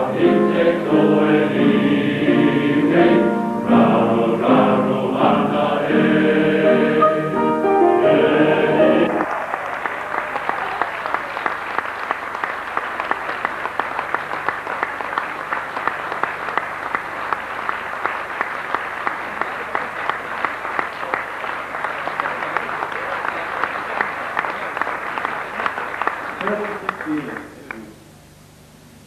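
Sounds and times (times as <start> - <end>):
audience applauding: 9.0 - 28.0.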